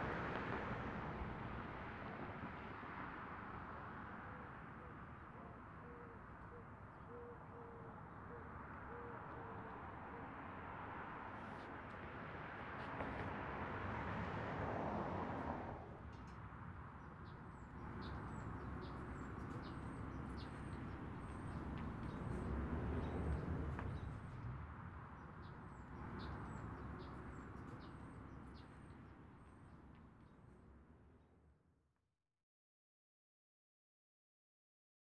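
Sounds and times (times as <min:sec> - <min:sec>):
small birds chirping: 0:17.0 - 0:24.2.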